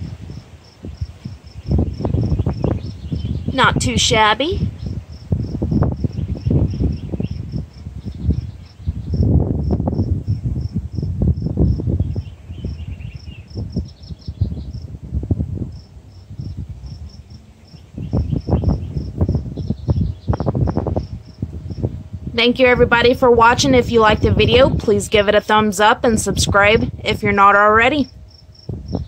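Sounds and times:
crickets chirping: 0:00.0 - 0:03.4, 0:04.8 - 0:12.8, 0:15.7 - 0:22.0, 0:28.0 - 0:29.0
low rumbling: 0:00.0 - 0:29.0.

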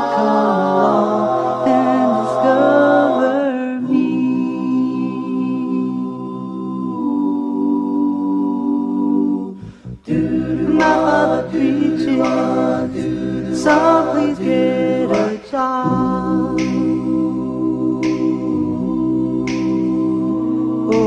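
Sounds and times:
a cappella vocal group singing: 0:00.0 - 0:21.0.

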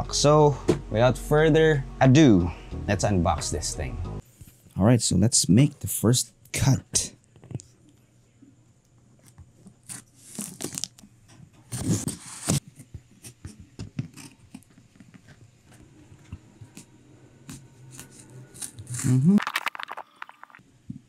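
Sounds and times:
knife cutting packing tape: 0:09.8 - 0:10.9, 0:11.7 - 0:12.6.

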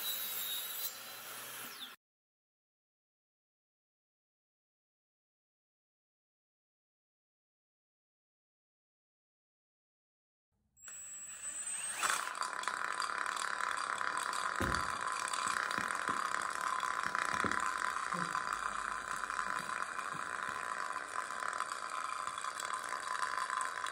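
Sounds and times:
table saw running: 0:00.0 - 0:02.0, 0:10.8 - 0:23.9.

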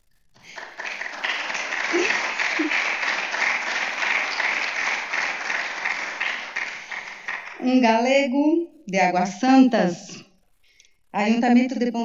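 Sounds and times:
audience applauding: 0:00.4 - 0:07.8.

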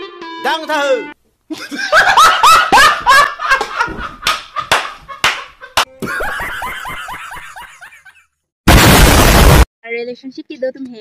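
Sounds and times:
man laughing hard: 0:01.5 - 0:08.4.

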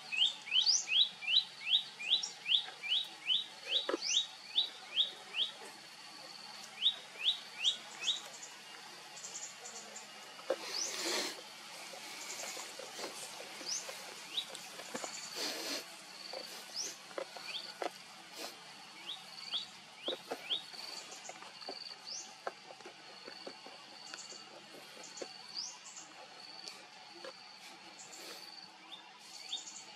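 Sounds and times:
birds chirping: 0:00.0 - 0:29.9
rustling: 0:10.3 - 0:28.5.

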